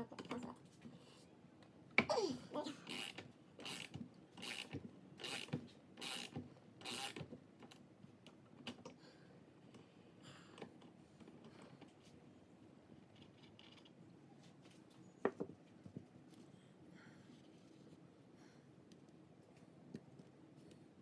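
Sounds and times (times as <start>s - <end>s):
faint handling noises: 9.6s - 21.0s.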